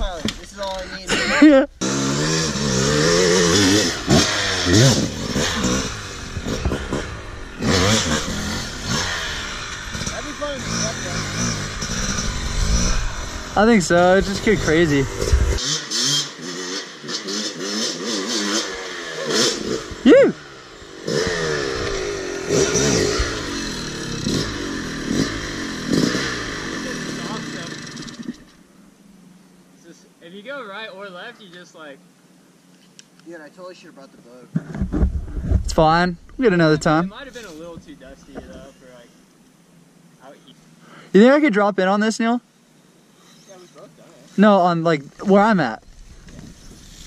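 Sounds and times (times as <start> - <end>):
dirt bike engine revving: 1.1 - 28.7, 35.1 - 38.7.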